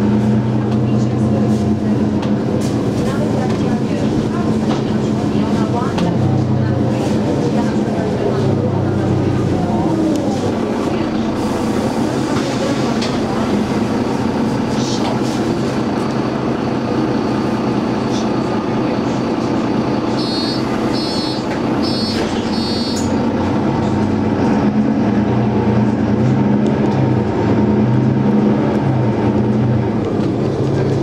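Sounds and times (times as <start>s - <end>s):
bus engine running: 0.0s - 31.0s
short high warning beeps: 20.2s - 23.1s.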